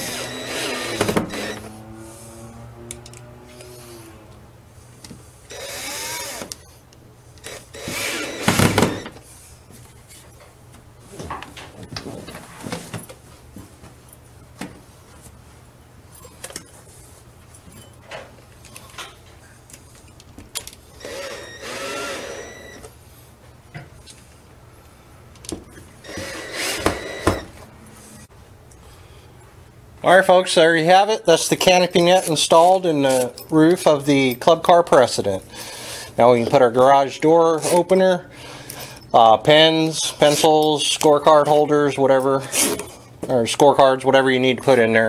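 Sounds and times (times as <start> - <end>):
cordless drill whirring: 0.0 - 1.7, 5.5 - 6.7, 7.4 - 9.2, 21.0 - 22.8, 26.0 - 27.5.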